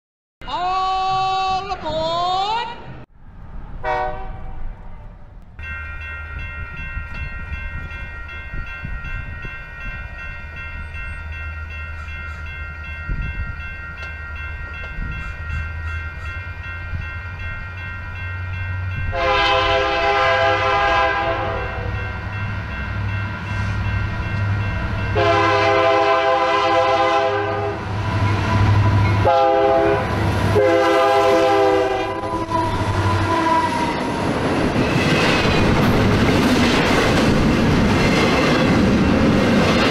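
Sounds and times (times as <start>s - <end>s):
passing train rush: 0.4s - 39.9s
train air horn: 3.8s - 5.2s, 19.1s - 22.0s, 25.2s - 27.8s, 29.2s - 34.0s
diesel locomotive rumble: 6.2s - 39.9s.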